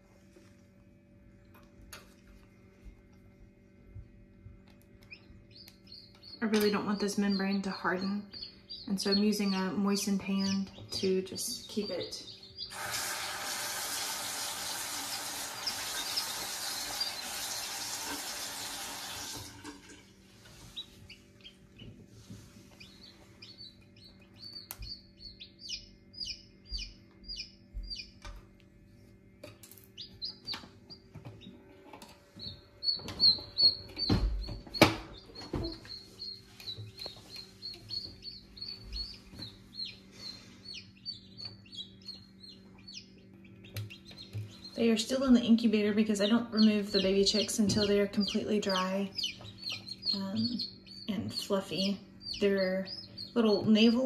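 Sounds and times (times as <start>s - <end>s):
baby chicks peeping: 2.0s - 18.8s, 20.1s - 28.6s, 29.4s - 54.0s
tap water running: 12.7s - 20.2s.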